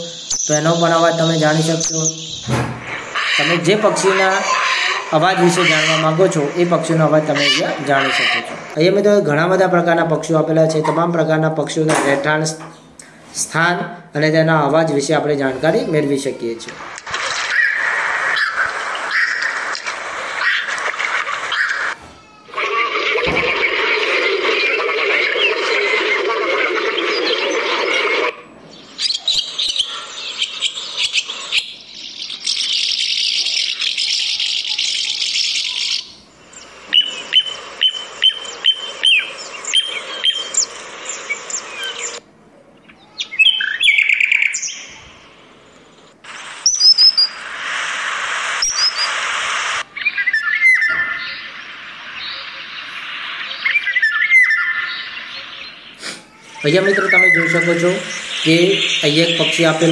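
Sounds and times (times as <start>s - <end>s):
recorded bird songs and calls: 0.0s - 10.1s, 24.5s - 47.5s, 48.4s - 59.9s.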